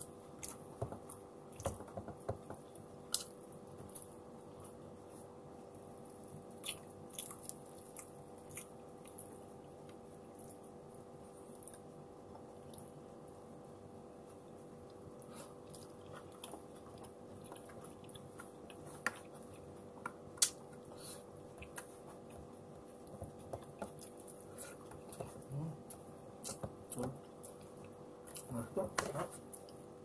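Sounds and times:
faint steady hum: 0:00.0 - 0:30.0
chewing and mouth smacks: 0:00.3 - 0:01.9, 0:06.1 - 0:10.6, 0:14.9 - 0:28.6.

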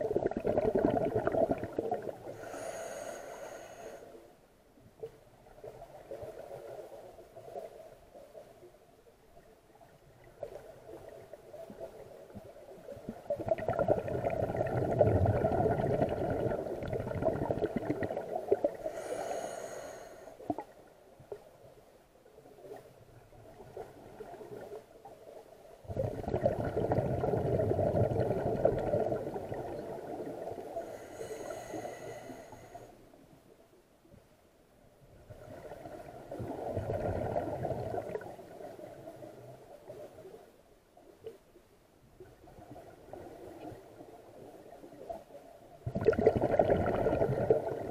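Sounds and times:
underwater bubbles gurgling: 0:00.0 - 0:03.9, 0:09.7 - 0:21.5, 0:22.4 - 0:32.7, 0:35.1 - 0:40.4, 0:42.2 - 0:47.9
underwater breathing: 0:02.2 - 0:04.2, 0:13.7 - 0:20.6, 0:30.6 - 0:33.0.

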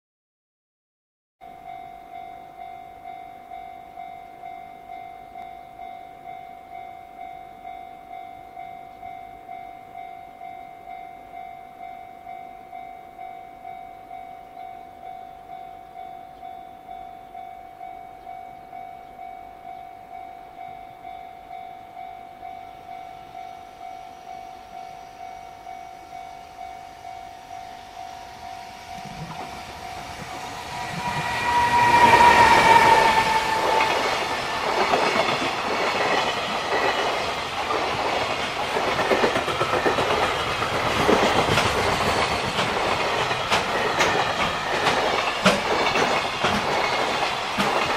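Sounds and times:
freight train passing: 0:01.7 - 0:47.9.

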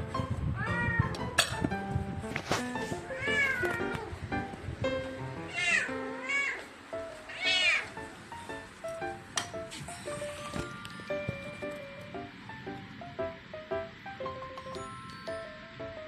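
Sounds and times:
cat meowing: 0:00.6 - 0:01.2, 0:03.1 - 0:04.1, 0:05.5 - 0:06.7, 0:07.3 - 0:08.0.

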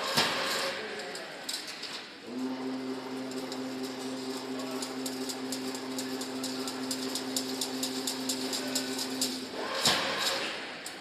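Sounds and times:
electric motor hum: 0:02.3 - 0:09.6
rapid metallic clicking: 0:03.2 - 0:11.0.

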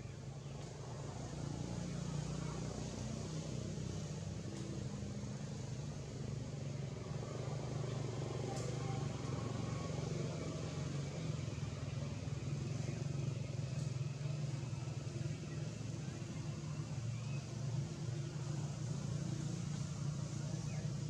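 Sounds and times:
vehicle engine humming: 0:00.0 - 0:21.0.

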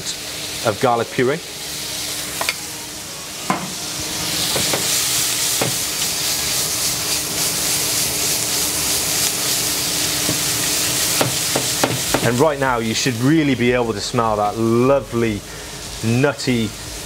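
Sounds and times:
mushrooms sizzling in butter: 0:00.0 - 0:17.0
spatula knocking on pan: 0:11.2 - 0:12.4.

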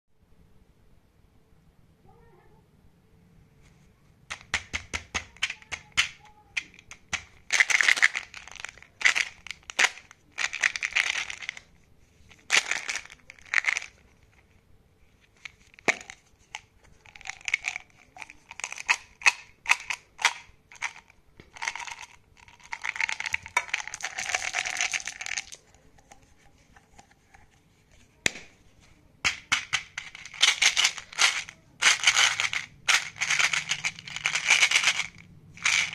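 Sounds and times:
gum pellets rattling in jar: 0:05.2 - 0:11.7, 0:12.3 - 0:14.0, 0:15.4 - 0:25.6, 0:29.3 - 0:35.9.

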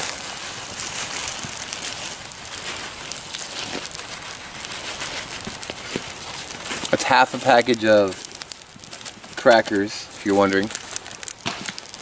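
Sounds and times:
plastic bag crinkling: 0:00.0 - 0:12.0
crackers falling into soup: 0:10.5 - 0:12.0.

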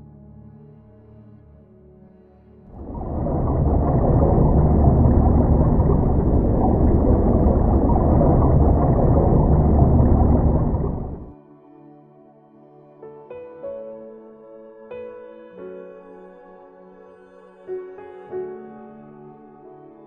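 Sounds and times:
muffled underwater water rumble: 0:02.7 - 0:11.3.

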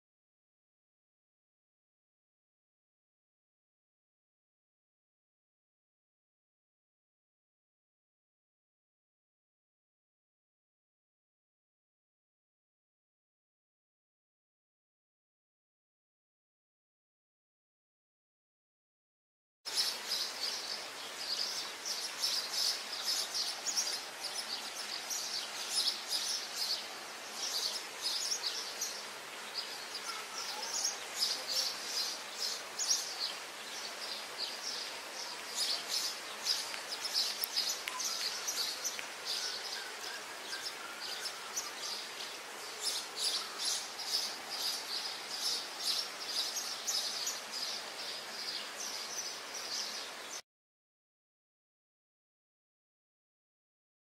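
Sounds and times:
small birds chirping: 0:19.7 - 0:50.4.

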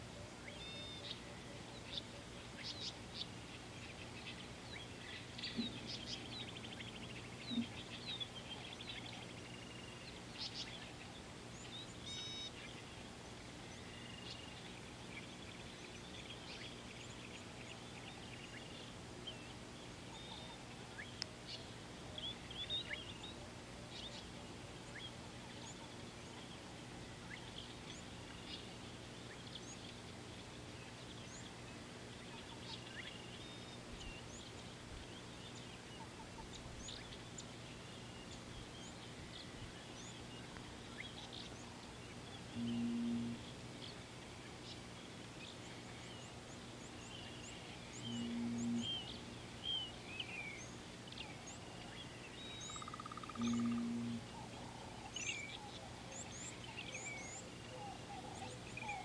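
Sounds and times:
faint low hum: 0:00.0 - 0:59.0
small birds chirping and trilling: 0:00.2 - 0:59.0
low hooting calls: 0:42.5 - 0:43.5, 0:48.0 - 0:49.2, 0:52.7 - 0:55.1.

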